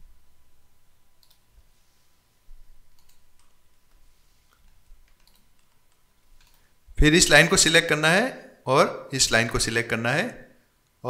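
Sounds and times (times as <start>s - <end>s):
low steady hum: 0.0s - 11.0s
computer mouse clicks: 1.2s - 1.4s, 2.9s - 6.7s.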